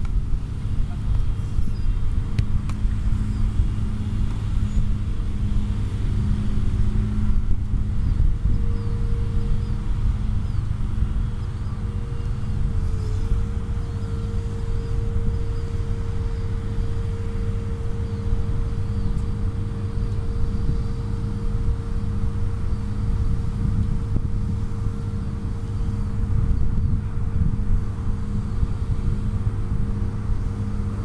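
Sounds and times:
machine hum: 0.0s - 31.0s.

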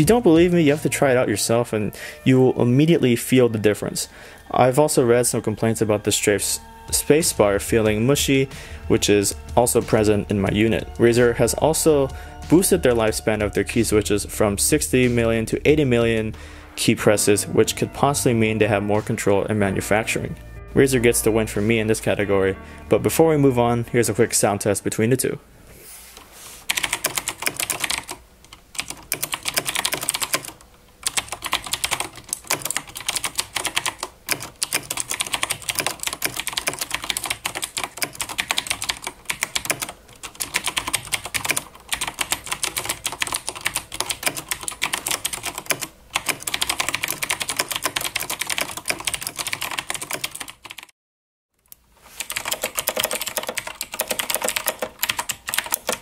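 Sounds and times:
fast clicky mechanical keyboard typing: 26.7s - 50.9s, 52.2s - 56.0s.

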